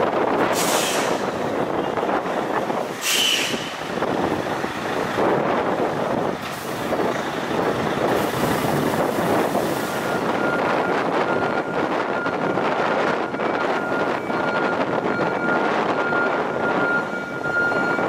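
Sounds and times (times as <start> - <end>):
truck diesel engine: 0.0 - 18.0
air brake hiss: 0.5 - 1.3, 3.0 - 3.8.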